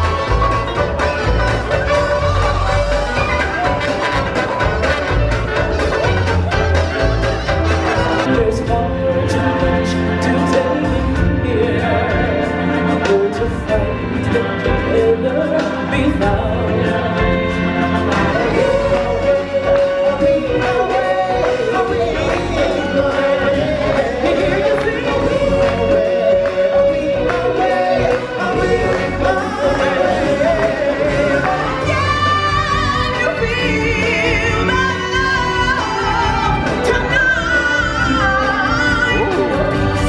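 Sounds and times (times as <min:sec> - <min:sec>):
backing music: 0:00.0 - 0:40.0
choir singing: 0:08.0 - 0:40.0.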